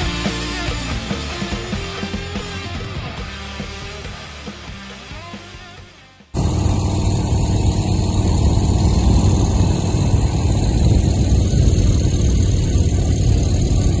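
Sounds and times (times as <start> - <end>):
motorcycle engine running: 6.4 - 14.0
wind noise on microphone: 6.4 - 14.0.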